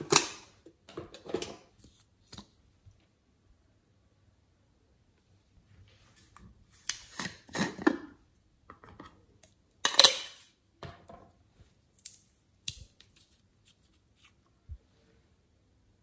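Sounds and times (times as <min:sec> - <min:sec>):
jar handling sounds: 0:06.8 - 0:09.2.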